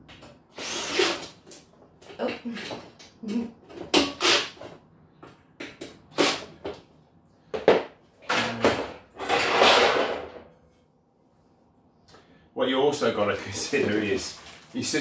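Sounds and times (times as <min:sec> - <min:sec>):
metal frame parts clattering: 0:08.3 - 0:10.5, 0:13.4 - 0:15.0.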